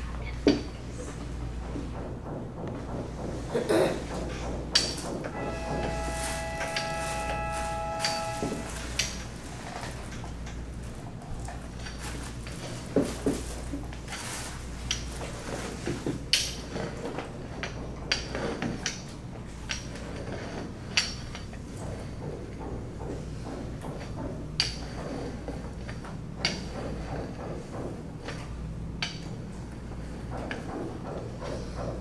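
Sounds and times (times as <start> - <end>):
low hum: 0.0 - 11.2
rolling pin rolling dough: 0.4 - 32.0.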